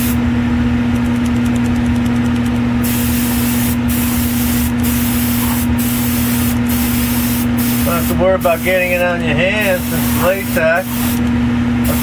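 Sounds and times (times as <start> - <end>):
steady motor hum: 0.0 - 12.0
airbrush air hiss: 2.8 - 9.0, 9.6 - 11.2.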